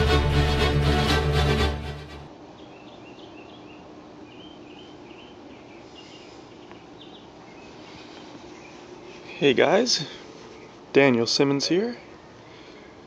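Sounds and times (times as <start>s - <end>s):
music: 0.0s - 2.3s
birds chirping: 2.5s - 12.2s.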